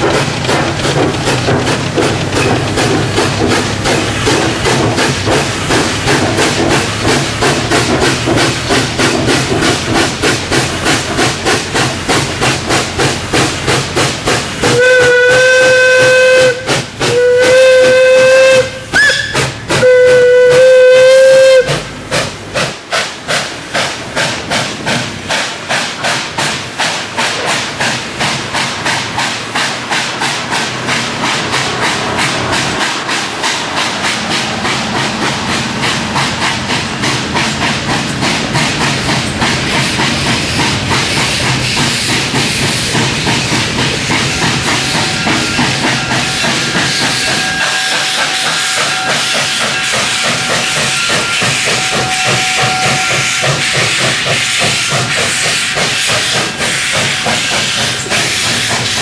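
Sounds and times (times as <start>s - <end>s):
steam locomotive exhaust chuffing: 0.0s - 59.0s
steam whistle blasts: 14.6s - 21.9s, 44.2s - 58.9s.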